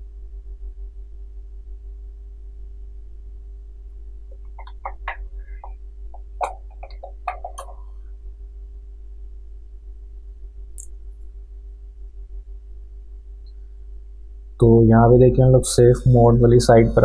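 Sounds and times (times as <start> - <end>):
steady electrical hum: 0.0 - 17.0
keyboard typing clicks: 4.4 - 7.8.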